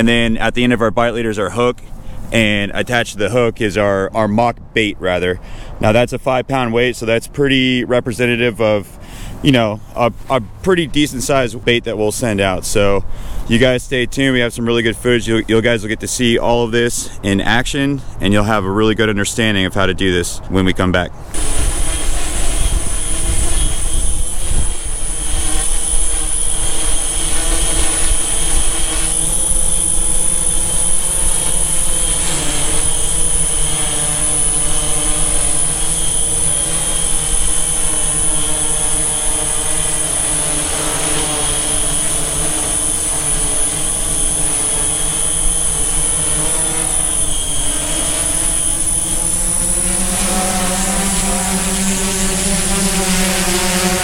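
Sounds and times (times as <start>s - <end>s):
drone motors and propellers humming: 21.2s - 54.0s.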